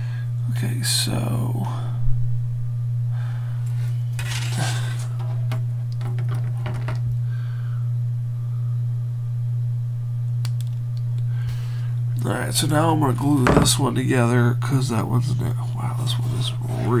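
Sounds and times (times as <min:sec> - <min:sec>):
low hum: 0:07.1 - 0:14.4.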